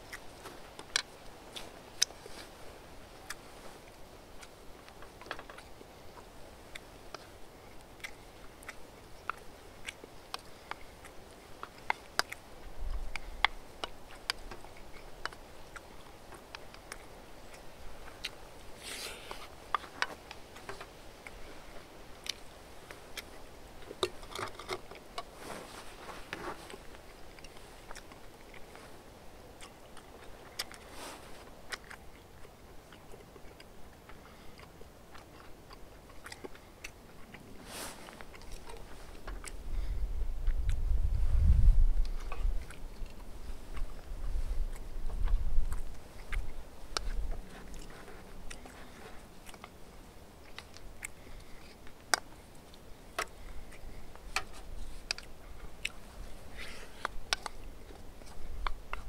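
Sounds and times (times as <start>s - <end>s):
wet chewing mouth clicks: 0.0s - 2.5s, 3.2s - 25.4s, 26.0s - 59.0s
leaves crunching: 25.3s - 27.1s.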